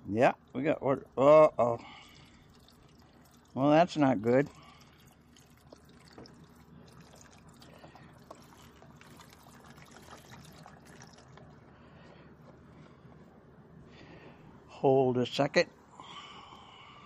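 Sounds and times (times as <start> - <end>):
water trickling: 0.4 - 11.6.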